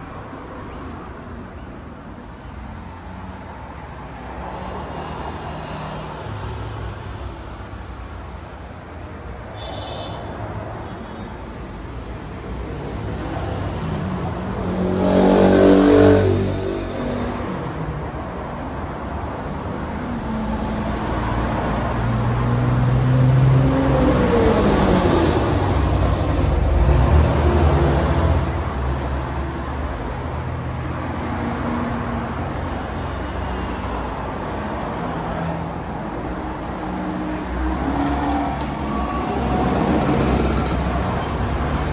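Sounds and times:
steady traffic rumble: 0.0s - 41.9s
vehicles driving past: 10.4s - 41.9s.

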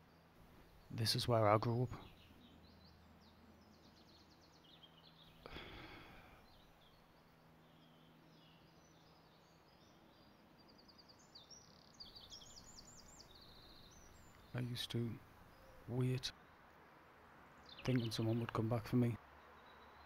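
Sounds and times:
faint birds chirping: 0.0s - 20.0s
breathy sigh: 5.4s - 6.6s.

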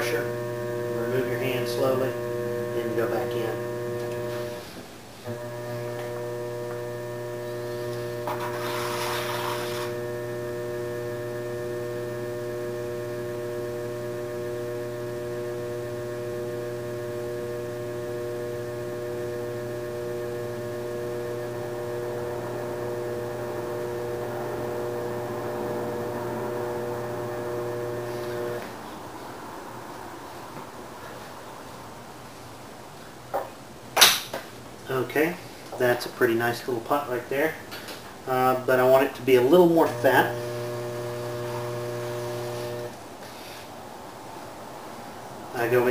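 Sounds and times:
potter's wheel motor humming: 0.0s - 28.8s, 38.8s - 43.0s, 45.6s - 45.9s.

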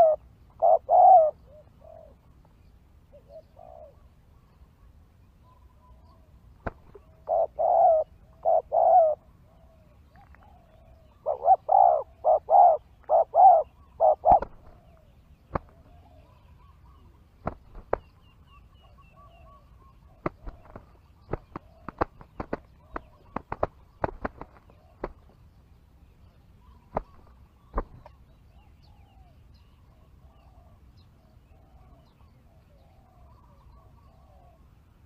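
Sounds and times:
doves cooing: 0.0s - 2.3s, 3.1s - 4.1s, 6.6s - 18.1s, 18.8s - 25.4s, 31.5s - 34.7s
sharp snaps of wings: 6.6s - 7.0s, 14.3s - 14.8s, 15.5s - 15.9s, 17.4s - 18.2s, 20.2s - 25.4s, 26.9s - 28.2s.

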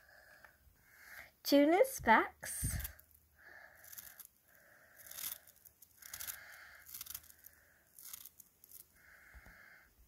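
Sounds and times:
magnetic balls crunching and clicking: 3.8s - 9.0s.

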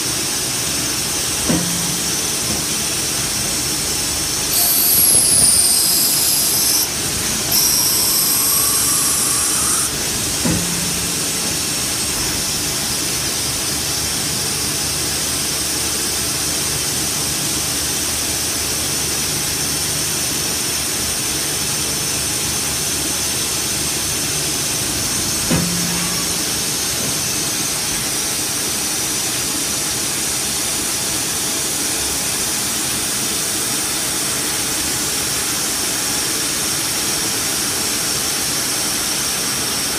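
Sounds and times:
lathe spindle and coolant hiss: 0.0s - 39.9s
high cutting whine: 0.7s - 15.3s, 21.0s - 28.8s
tool turret clunks: 1.2s - 13.6s, 24.8s - 28.3s.

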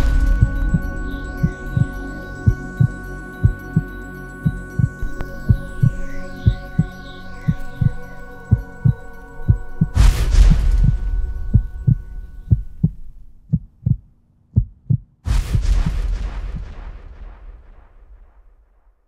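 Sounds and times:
deep thumps: 0.0s - 2.9s, 8.8s - 18.6s
loud cinematic impact: 0.0s - 2.9s, 10.0s - 13.4s, 15.3s - 18.9s
held chord: 0.0s - 12.5s.

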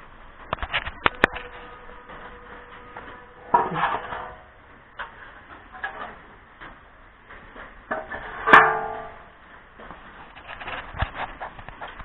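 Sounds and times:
metal panel clanging: 0.9s - 6.2s, 7.9s - 9.4s.

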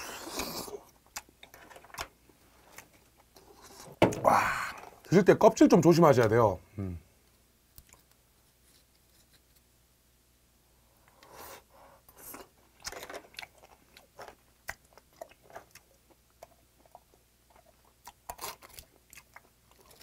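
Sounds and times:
wet chewing with mouth clicks: 12.2s - 20.0s.

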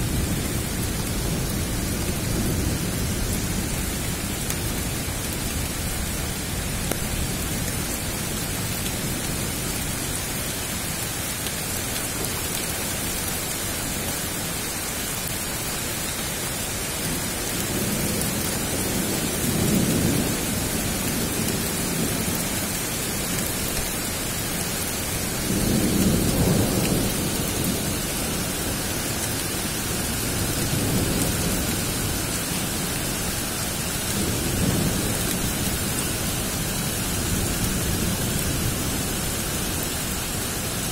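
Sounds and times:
steady rain: 0.0s - 40.9s
thunder rumbling: 25.0s - 28.7s.

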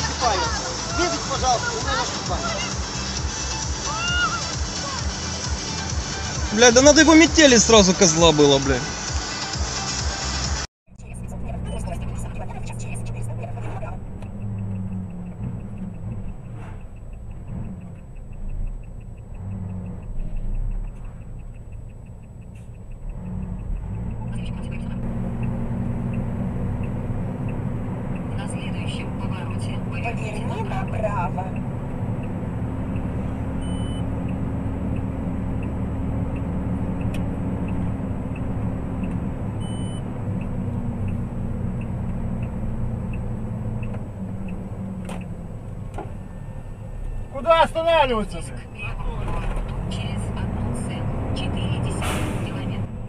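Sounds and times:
fast regular ticking: 0.0s - 33.2s
car engine rumble: 0.0s - 53.0s
road noise: 0.0s - 53.0s
faint regular ticking: 11.0s - 48.8s
short electronic beep: 33.6s - 34.1s, 39.6s - 40.0s.

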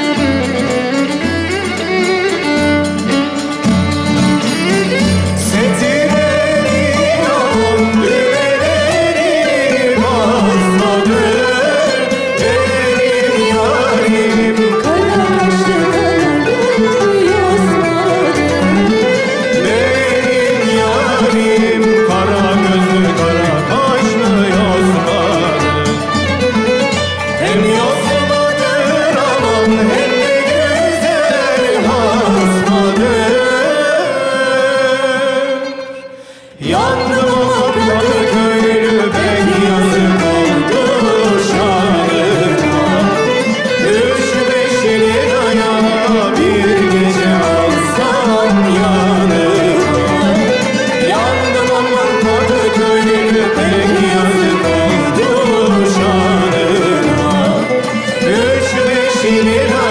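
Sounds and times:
frame drums beating: 0.0s - 33.6s, 36.7s - 59.9s
lute and violin and zither: 0.0s - 59.9s
person singing: 0.0s - 59.9s.

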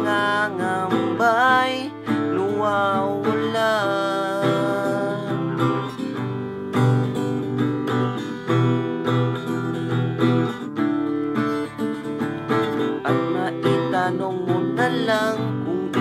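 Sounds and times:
person singing: 0.0s - 7.0s, 12.4s - 16.0s
acoustic guitar strumming: 0.0s - 16.0s.

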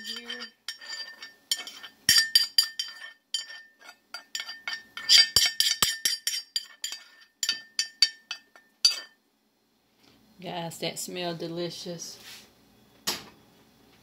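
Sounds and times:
utensil clinking on cast iron: 0.0s - 9.2s.

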